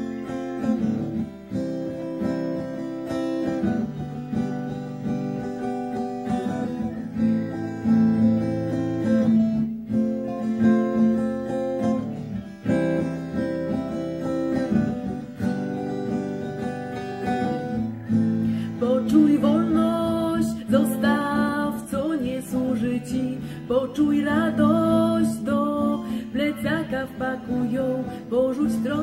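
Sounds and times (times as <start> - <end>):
acoustic guitar strumming: 0.0 - 29.0
woman singing: 17.3 - 29.0.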